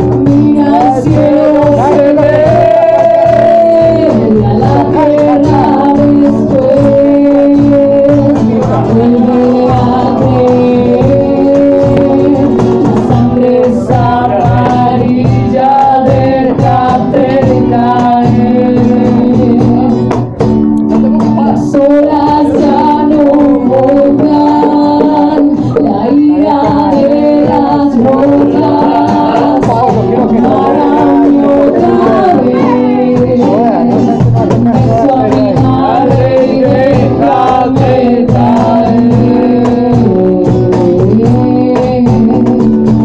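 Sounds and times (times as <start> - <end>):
acoustic guitar: 0.0 - 43.0
woman singing into microphone: 0.0 - 43.0.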